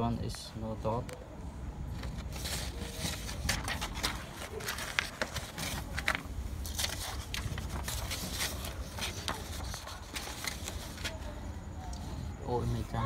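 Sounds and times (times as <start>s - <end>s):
paper rustling and crinkling: 1.9s - 11.4s.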